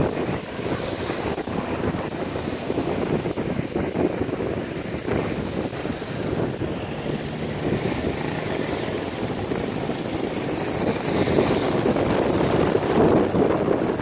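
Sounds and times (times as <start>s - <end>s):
propeller plane engines droning: 4.4s - 11.8s.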